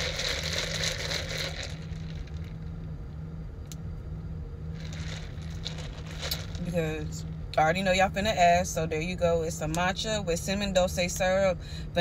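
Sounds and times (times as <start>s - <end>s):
low hum inside car cabin: 0.0s - 12.0s
crackling and rustling: 4.8s - 6.6s.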